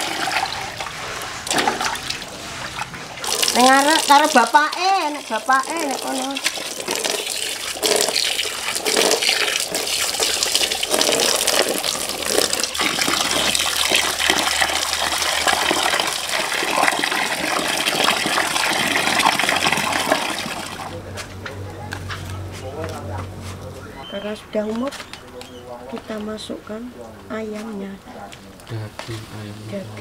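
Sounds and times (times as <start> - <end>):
running water splashing: 0.0 - 21.0.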